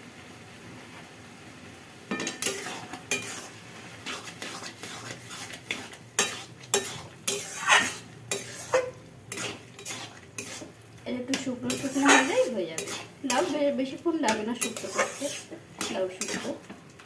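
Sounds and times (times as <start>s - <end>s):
low sizzle of cooking: 0.0s - 17.0s
spatula scraping metal pan: 2.2s - 16.7s.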